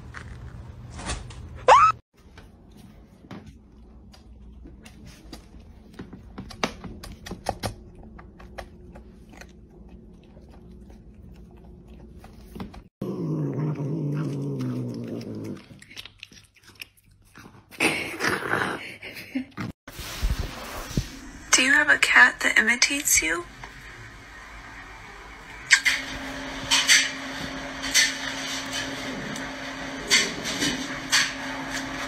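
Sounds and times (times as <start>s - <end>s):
loud wet chewing: 7.5s - 12.9s, 13.6s - 17.8s
cat growling: 13.0s - 15.9s.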